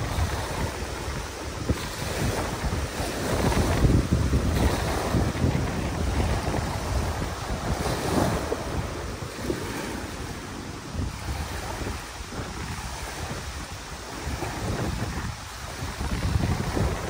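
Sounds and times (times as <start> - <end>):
waves breaking on sandy beach: 0.0 - 17.0
wind buffeting microphone: 0.0 - 17.0.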